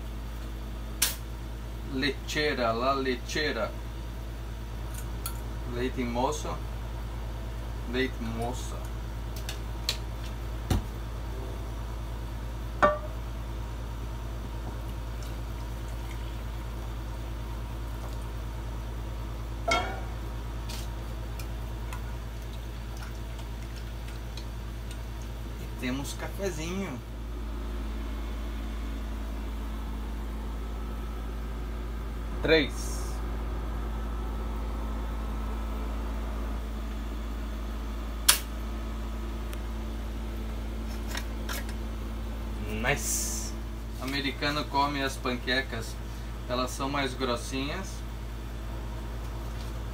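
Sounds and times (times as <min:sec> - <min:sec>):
steady low hum: 0:00.0 - 0:49.9
water trickling into mug: 0:14.8 - 0:16.9.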